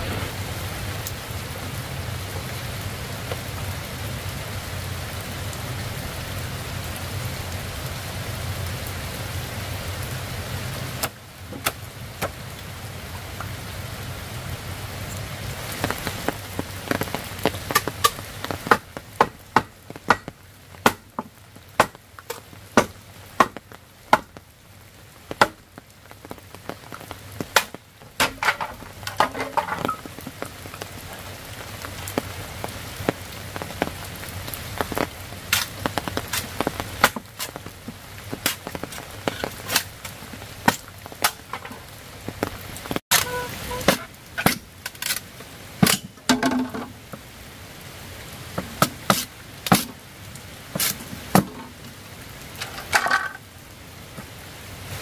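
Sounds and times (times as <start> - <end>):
rain hiss: 0.0 - 55.0
machete chopping bamboo: 17.7 - 24.3.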